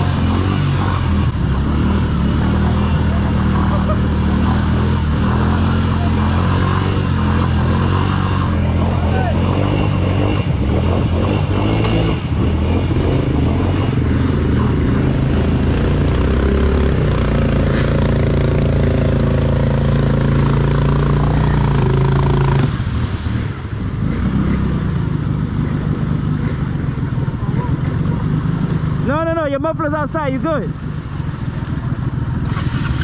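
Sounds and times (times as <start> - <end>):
vehicle engine revving: 0.0 - 33.0.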